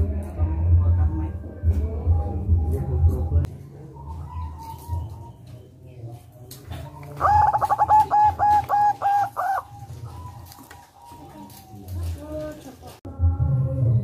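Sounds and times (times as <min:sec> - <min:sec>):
dove cooing: 0:03.6 - 0:13.0.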